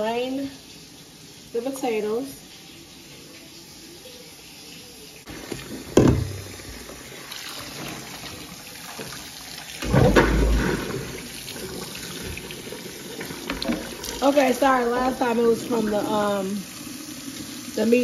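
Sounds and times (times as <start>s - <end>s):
water splashing in a steel sink: 4.1s - 18.0s
plastic colander handled: 9.9s - 16.1s.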